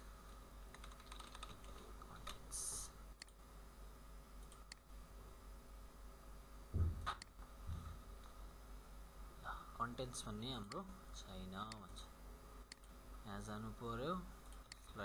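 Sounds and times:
faint steady hum: 0.0 - 15.0
keyboard keystrokes: 0.7 - 2.4
low thump: 6.7 - 8.0.

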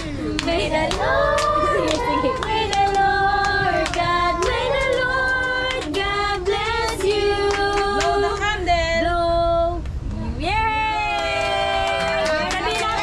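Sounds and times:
hand claps: 0.0 - 8.1
women and children singing: 0.0 - 9.8.

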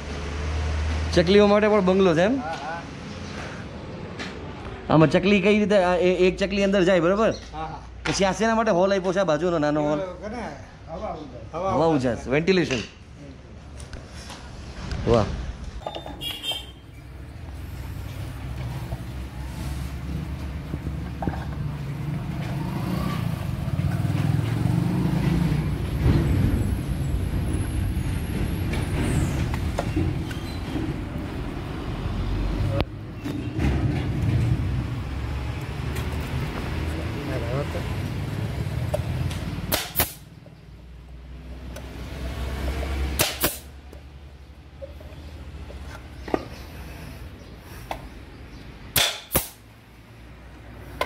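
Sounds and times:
nail gun shots into plywood: 39.7 - 40.2, 43.2 - 43.7, 48.9 - 49.6.

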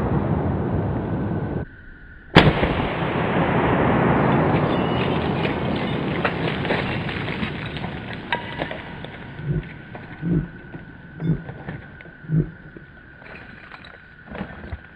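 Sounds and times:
rifle shot echo: 2.4 - 9.9
soft low thumps: 6.7 - 12.9.

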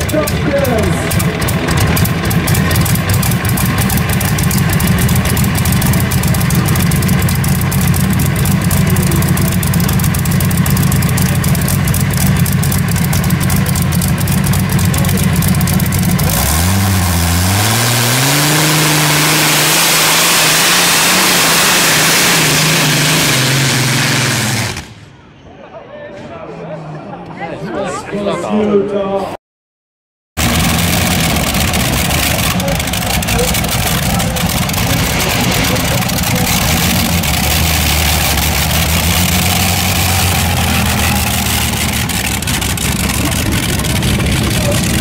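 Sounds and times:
tractor engine idling and revving: 0.0 - 25.2, 30.4 - 45.0.

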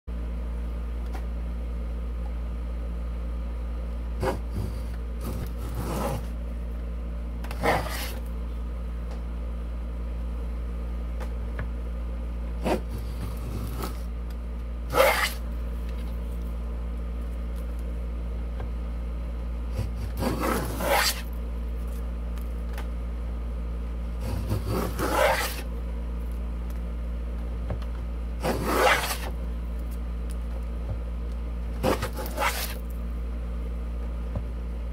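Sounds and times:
wooden plane scraping a board: 4.2 - 6.3, 7.5 - 8.3, 12.6 - 14.0, 14.9 - 15.4, 19.7 - 21.3, 24.2 - 25.7, 28.4 - 29.3, 31.8 - 32.8.

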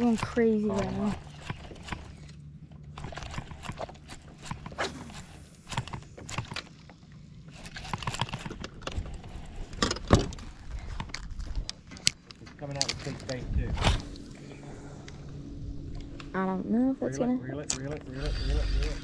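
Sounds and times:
fishing gear clicks and knocks: 0.0 - 13.4
steady low hum: 0.0 - 19.0.

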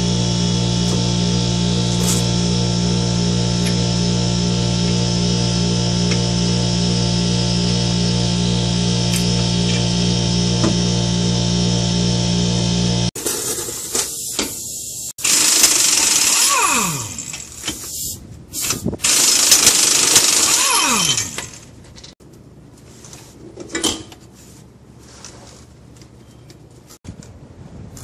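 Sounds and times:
pneumatic impact wrench hammering: 1.9 - 2.6, 3.6 - 3.9, 9.1 - 11.0, 13.2 - 21.7.

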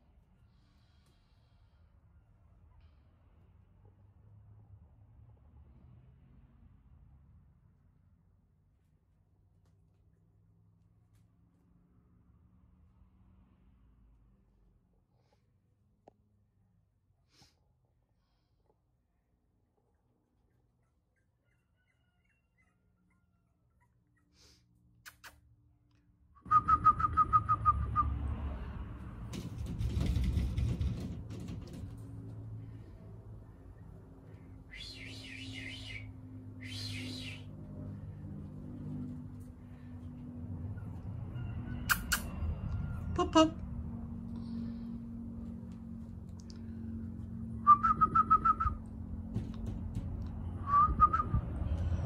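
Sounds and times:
person whistling chirps: 26.4 - 28.1, 34.7 - 37.4, 47.7 - 48.8, 50.7 - 51.4.

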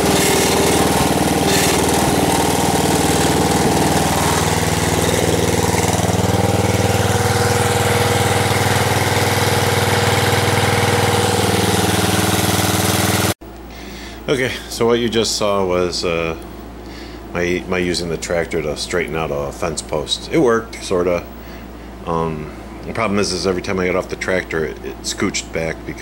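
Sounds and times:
garden tractor engine running: 0.0 - 13.4.

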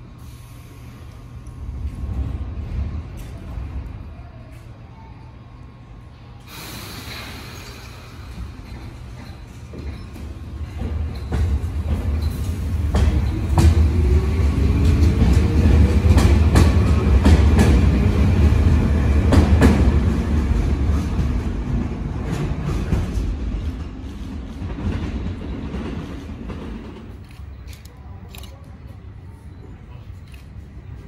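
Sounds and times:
train rumble: 0.0 - 31.0
train wheels clacking: 6.5 - 28.7.

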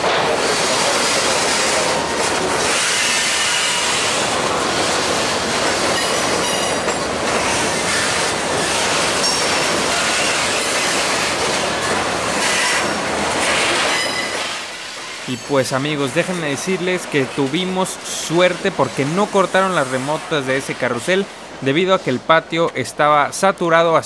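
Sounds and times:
train cars running over rails: 0.0 - 24.0
wheel squeal: 13.9 - 14.6.

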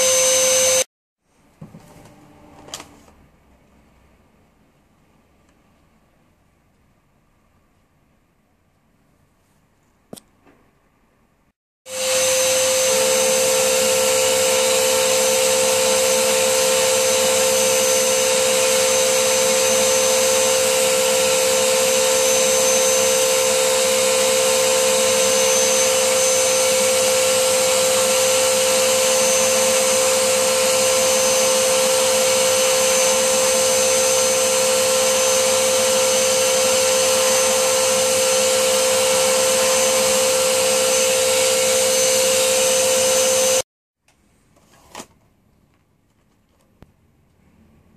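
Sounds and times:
vacuum cleaner whining: 0.0 - 0.9, 11.9 - 43.7.

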